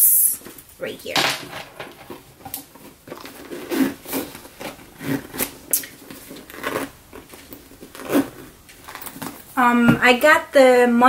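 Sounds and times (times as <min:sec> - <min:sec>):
backpack rustling and knocking: 0:01.5 - 0:10.1.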